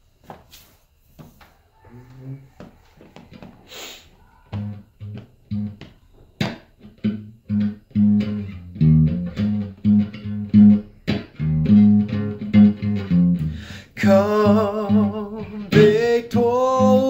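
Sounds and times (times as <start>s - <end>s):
electric guitar picking bass notes: 4.6s - 17.0s.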